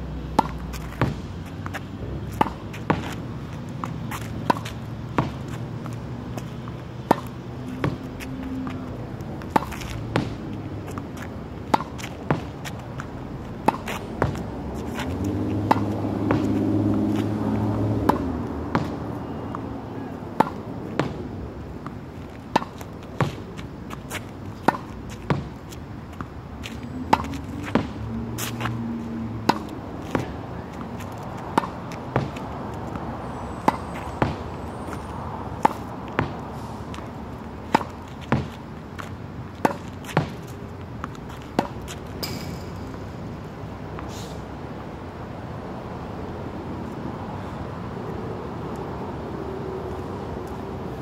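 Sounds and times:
tennis ball pops against wall: 41.6 - 43.1.

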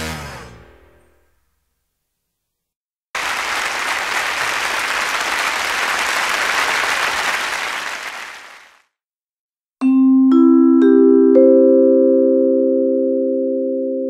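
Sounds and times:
crowd applauding: 3.2 - 9.0.

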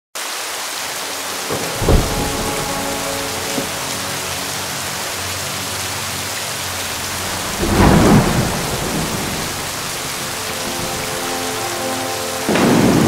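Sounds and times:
heavy rain falling: 0.2 - 13.0
thunder clap: 1.3 - 5.1, 6.8 - 13.0.

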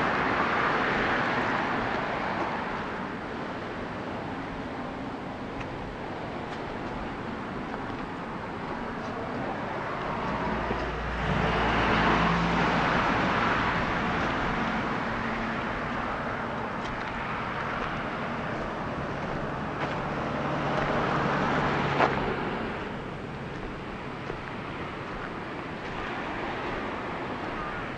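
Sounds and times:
vehicles passing: 0.0 - 27.9
wind: 0.0 - 27.9.

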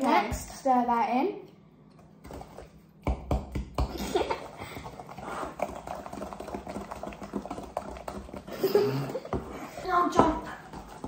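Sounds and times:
wooden spoon scraping glass bowl: 4.9 - 11.0.

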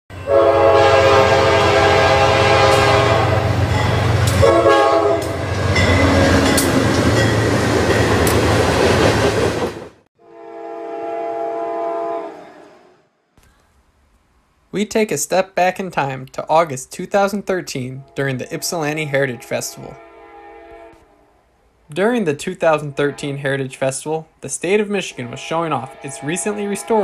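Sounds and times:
faint train horn: 0.1 - 3.6, 4.3 - 5.4, 10.2 - 13.2, 17.9 - 21.6, 22.7 - 23.7, 25.0 - 27.0
locomotive air horn blasts: 0.1 - 3.6, 4.3 - 5.4, 10.2 - 13.1, 17.9 - 21.3, 22.8 - 23.4, 25.1 - 27.0
wheels clacking on rail joints: 5.2 - 9.7.

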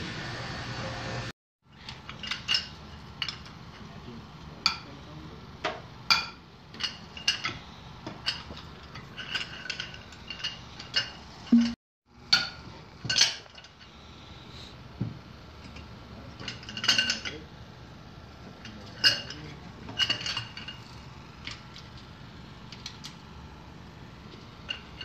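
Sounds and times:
metal tools clinking on engine: 1.8 - 3.6, 6.1 - 11.2, 15.6 - 17.5, 18.6 - 21.6.

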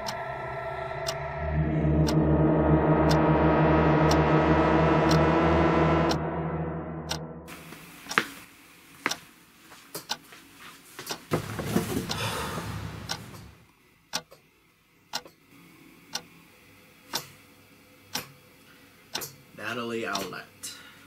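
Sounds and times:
clock ticking: 0.0 - 5.4, 12.9 - 14.4, 20.1 - 20.4
ringing tone: 0.0 - 7.5
rushing swell of noise: 0.0 - 7.8.

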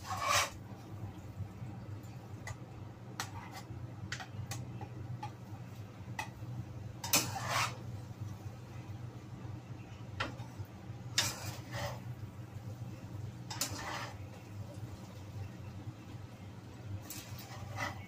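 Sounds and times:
tongs scraping a wok: 0.0 - 0.6, 3.2 - 4.6, 7.0 - 7.9, 10.2 - 12.2, 13.3 - 14.5, 17.0 - 18.0.

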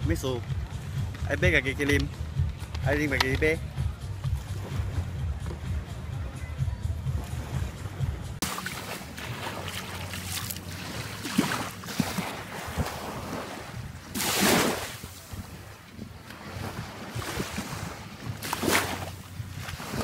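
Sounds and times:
surf at water's edge: 0.0 - 20.0
wind buffeting microphone: 10.6 - 20.0.

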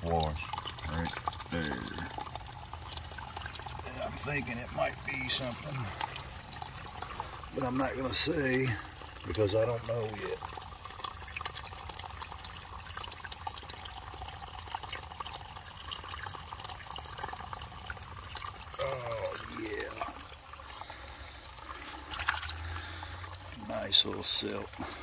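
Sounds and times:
shallow water trickling: 0.0 - 25.0
man murmuring: 0.9 - 2.2.

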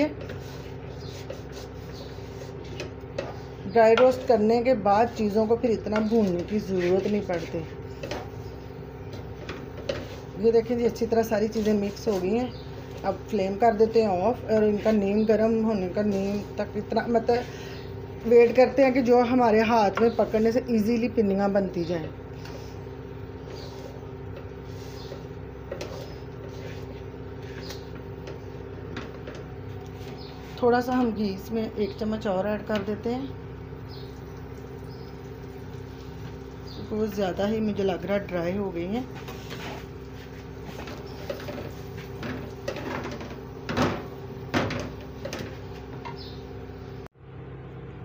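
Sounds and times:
wooden spoon scraping a pan: 0.0 - 17.7, 21.8 - 31.0, 38.6 - 46.2
steady background hum: 0.0 - 48.0.

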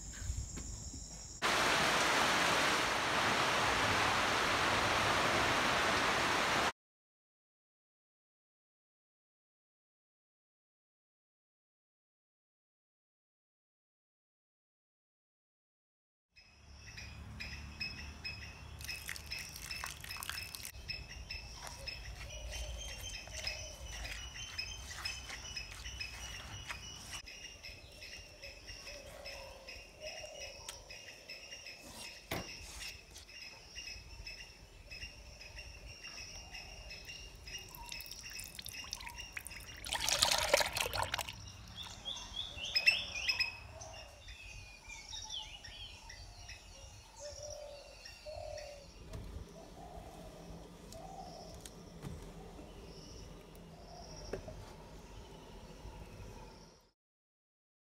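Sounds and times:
birds chirping: 16.6 - 56.9
liquid dripping into bowl: 18.8 - 20.7, 37.7 - 41.4.

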